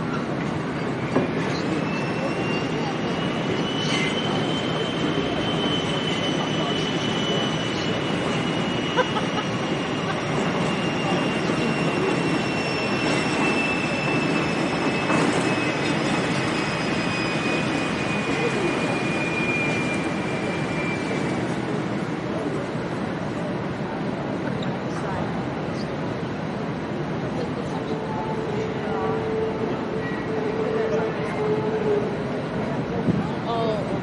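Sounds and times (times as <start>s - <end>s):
high wheel squeal on rails: 0.0s - 23.5s, 24.3s - 34.0s
murmur of voices: 1.4s - 13.5s, 21.6s - 34.0s.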